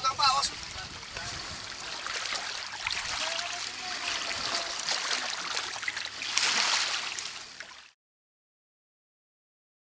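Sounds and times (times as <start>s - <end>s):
water trickling over rocky shore: 0.7s - 8.0s.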